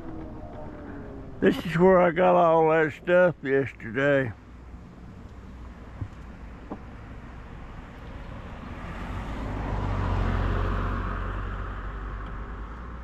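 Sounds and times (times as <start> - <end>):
low engine rumble: 0.0 - 13.0
car passing by: 7.6 - 13.0.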